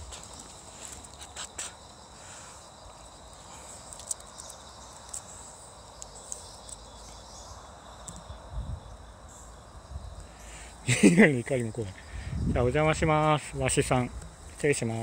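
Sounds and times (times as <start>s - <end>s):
footsteps: 0.0s - 1.8s
night insects chirping: 0.0s - 15.0s.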